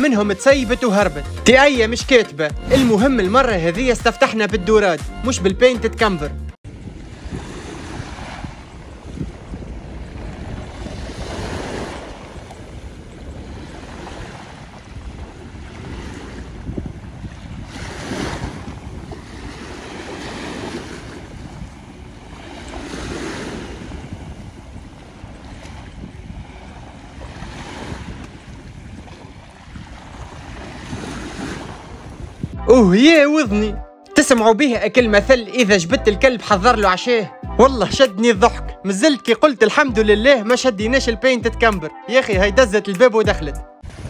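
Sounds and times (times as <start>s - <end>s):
wind on microphone: 6.6s - 32.8s, 43.8s - 44.0s
small waves washing onto sand: 6.7s - 32.6s.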